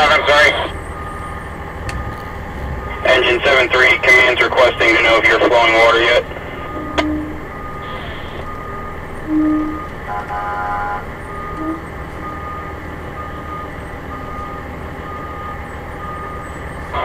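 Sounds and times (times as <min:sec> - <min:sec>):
idling fire engine rumble: 0:00.0 - 0:17.0
reverse alarm beeping: 0:00.0 - 0:17.0
short low tone: 0:01.8 - 0:03.2.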